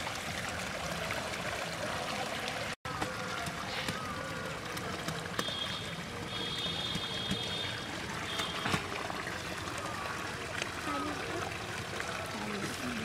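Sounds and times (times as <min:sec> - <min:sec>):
water pouring through plastic basket: 0:00.0 - 0:13.0
water running down a ditch: 0:00.0 - 0:13.0.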